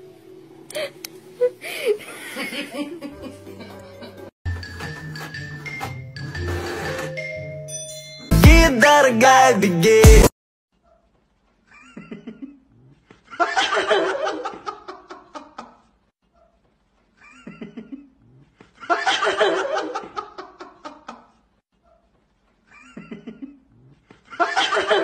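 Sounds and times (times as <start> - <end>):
person laughing hard: 0.7 - 4.2
person giggling: 0.7 - 4.3, 22.7 - 25.0.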